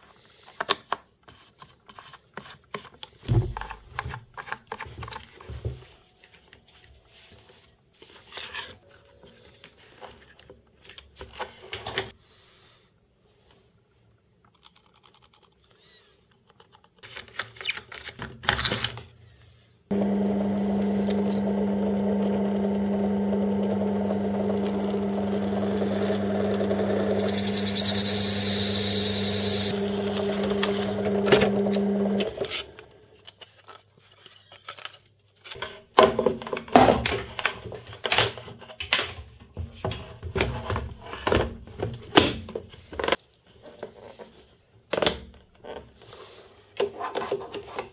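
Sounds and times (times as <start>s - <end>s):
drill press motor humming: 19.9s - 32.9s
drill bit hissing through plastic: 27.2s - 29.8s.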